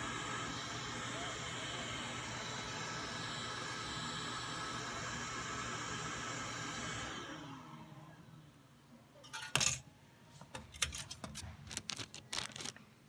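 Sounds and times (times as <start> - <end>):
metal key clinking into tray: 9.2 - 9.8, 10.6 - 11.4.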